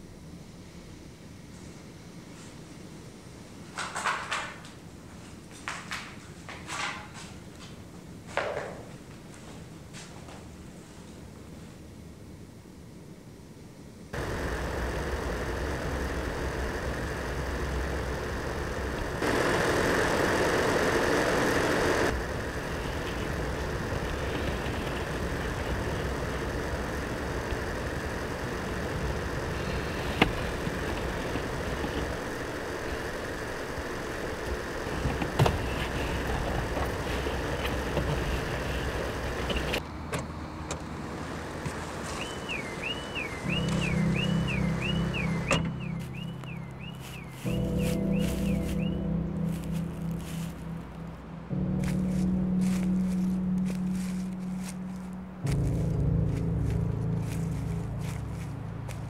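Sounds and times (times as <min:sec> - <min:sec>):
outdoor background noise: 0:00.0 - 0:59.0
car engine hum: 0:14.1 - 0:59.0
rush of noise: 0:14.2 - 0:39.8, 0:41.1 - 0:59.0.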